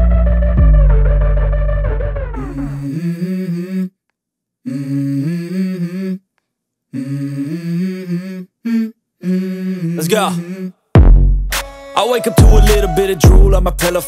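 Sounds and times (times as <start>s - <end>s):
hummed vocal melody: 2.3s - 4.0s, 4.6s - 6.3s, 6.9s - 10.9s, 11.8s - 14.0s.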